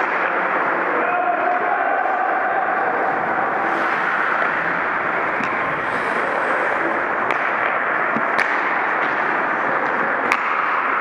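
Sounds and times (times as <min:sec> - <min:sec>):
hockey sticks and puck clacking: 0:00.0 - 0:11.0
skates rushing on ice: 0:00.0 - 0:11.0.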